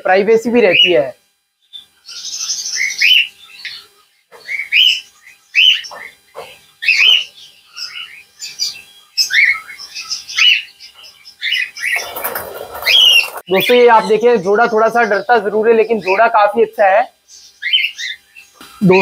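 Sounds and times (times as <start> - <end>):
cockatiels chirping: 6.8 - 14.1.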